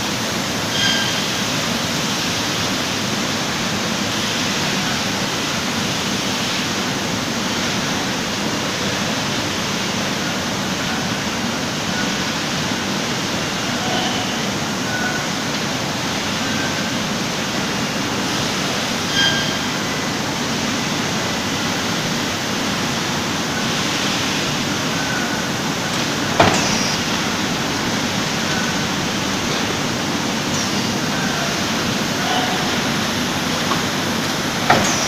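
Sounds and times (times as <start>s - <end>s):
carton packing machine working: 0.0s - 35.0s.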